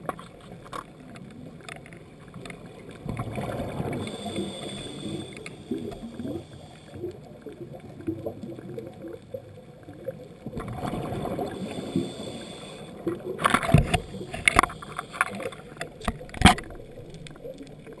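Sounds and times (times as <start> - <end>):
underwater bubbles gurgling: 0.0 - 18.0
sharp clicks and pops: 13.4 - 18.0.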